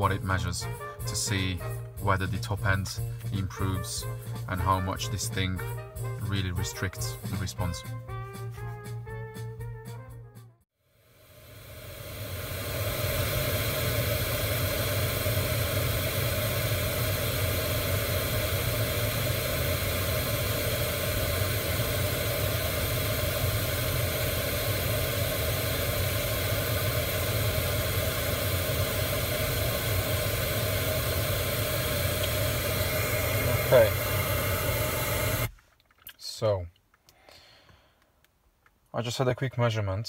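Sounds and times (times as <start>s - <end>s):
pink noise hiss through speakers: 11.1s - 35.5s.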